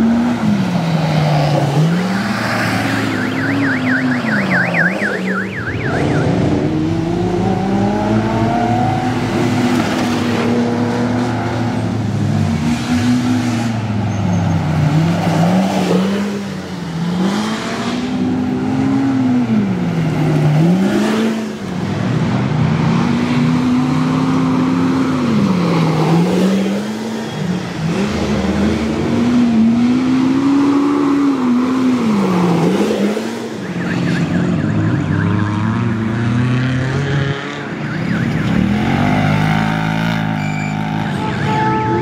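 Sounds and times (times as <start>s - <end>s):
off-road vehicle engine revving: 0.0s - 13.8s, 14.6s - 21.6s, 35.2s - 41.2s.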